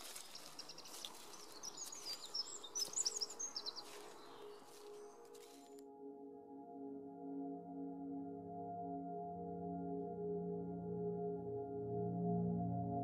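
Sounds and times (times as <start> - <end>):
small songbirds chirping: 0.0 - 5.7
footsteps in dry leaves: 0.0 - 5.8.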